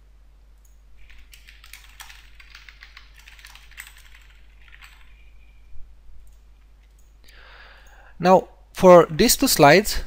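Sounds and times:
typing on a keyboard: 1.0 - 5.2.

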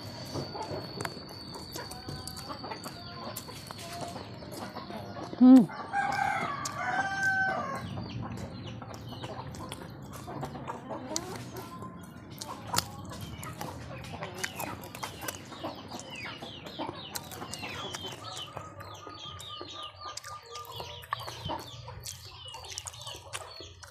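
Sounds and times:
chicken clucking: 0.0 - 23.9
rooster crowing: 5.7 - 8.0.

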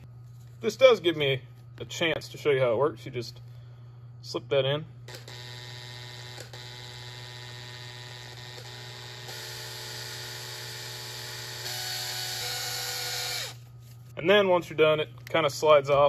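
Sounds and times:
electric drill motor whine: 5.2 - 13.7.

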